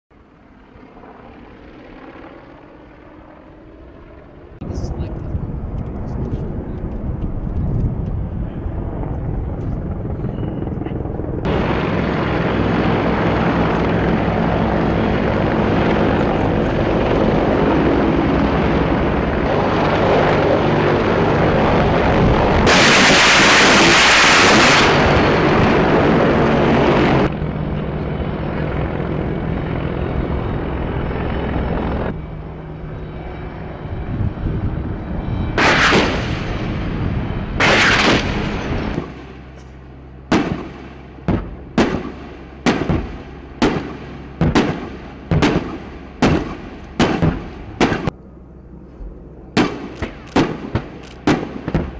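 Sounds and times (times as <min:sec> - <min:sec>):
helicopter rotor and engines: 0:00.1 - 0:51.9
explosion blasts with rumble: 0:22.0 - 0:25.9, 0:35.5 - 0:39.3, 0:40.3 - 0:48.1
rounds striking target: 0:37.6 - 0:39.4, 0:40.3 - 0:48.1, 0:49.6 - 0:51.9.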